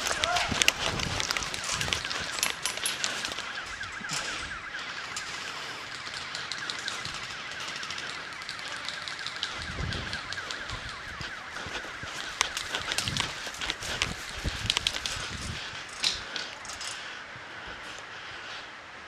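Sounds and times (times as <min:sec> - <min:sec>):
warbling electronic alarm tone: 0:00.0 - 0:16.0.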